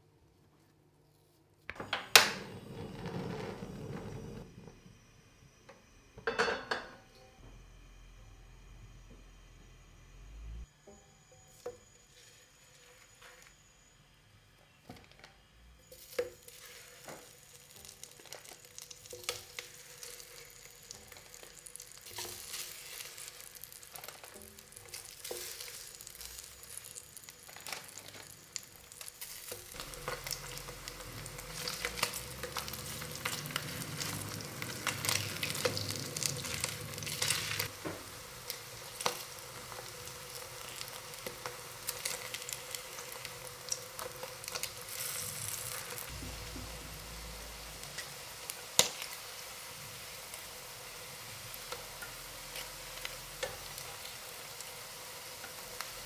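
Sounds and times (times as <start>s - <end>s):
meat sizzling in hot oil: 15.8s - 56.0s.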